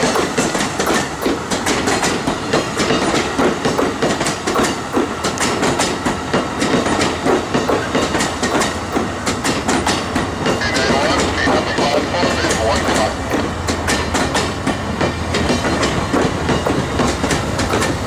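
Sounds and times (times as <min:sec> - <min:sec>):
steel wheels rumbling on rail: 0:00.0 - 0:18.0
wheels clicking over rail joints: 0:12.8 - 0:18.0.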